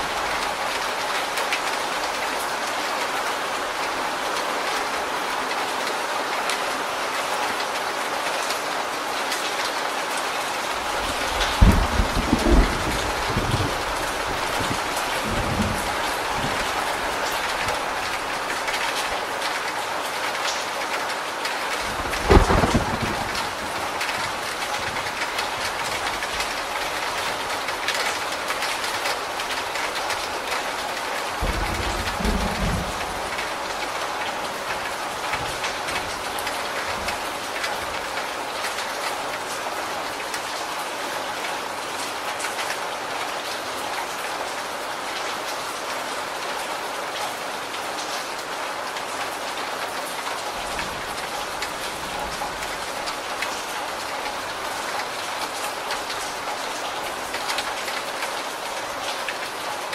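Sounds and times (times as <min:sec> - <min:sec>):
rain on a corrugated roof: 0:00.0 - 0:59.9
thunder rumbling: 0:11.1 - 0:17.9, 0:21.9 - 0:25.2, 0:31.4 - 0:34.0.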